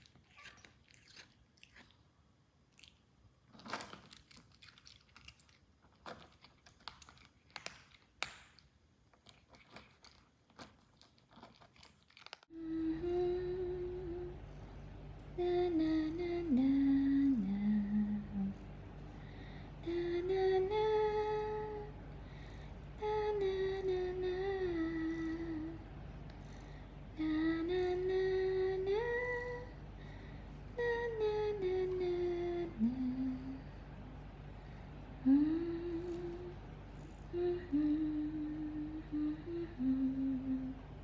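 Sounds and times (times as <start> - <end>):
woman humming: 12.5 - 14.4, 15.2 - 18.6, 19.8 - 21.9, 30.8 - 33.8, 35.2 - 36.7, 37.3 - 40.9.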